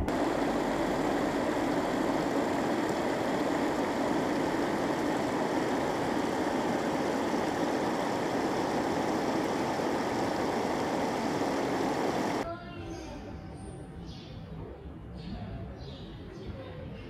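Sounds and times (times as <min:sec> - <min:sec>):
fountain water splashing: 0:00.0 - 0:12.4.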